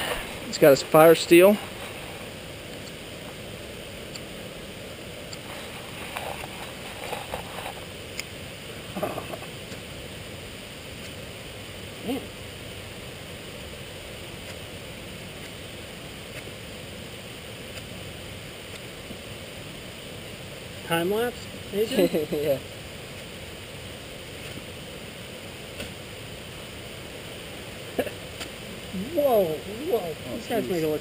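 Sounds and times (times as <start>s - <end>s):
fire steel scraping: 0.0s - 2.4s, 5.4s - 8.0s
stream and waterfall rushing: 0.0s - 31.0s.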